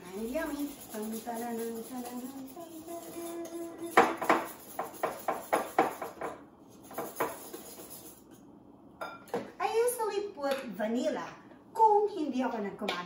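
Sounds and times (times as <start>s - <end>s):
whisk clacking against a bowl: 0.0s - 8.4s.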